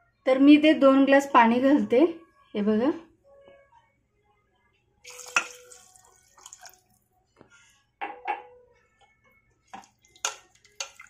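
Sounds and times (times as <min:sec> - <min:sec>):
water splashing into pot: 0:05.1 - 0:07.0, 0:09.7 - 0:11.0
wooden spatula stirring pot: 0:09.8 - 0:11.0.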